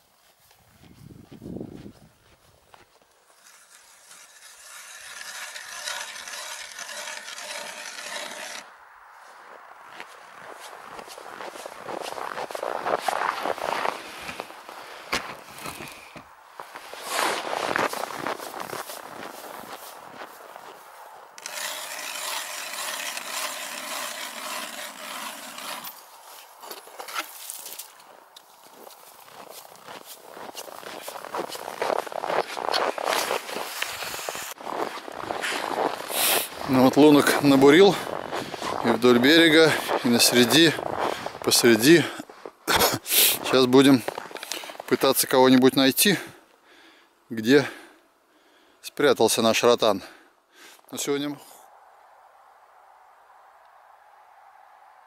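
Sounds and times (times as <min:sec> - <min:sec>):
footsteps in snow: 0:00.0 - 0:45.4
ice auger grinding through ice: 0:03.3 - 0:08.7, 0:21.4 - 0:27.9, 0:30.4 - 0:41.1.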